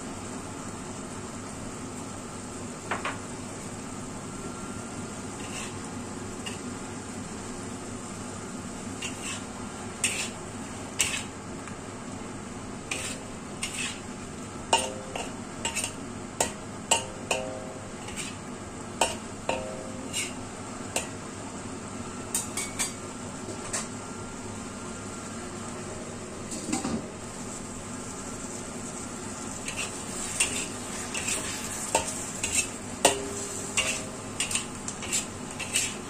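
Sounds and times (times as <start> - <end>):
food simmering hiss: 0.0 - 36.0
metal ladle scraping a wok: 5.4 - 5.8, 9.0 - 10.4, 11.0 - 11.3, 12.9 - 14.0, 18.0 - 18.4, 20.1 - 20.4, 29.6 - 32.8, 33.4 - 36.0.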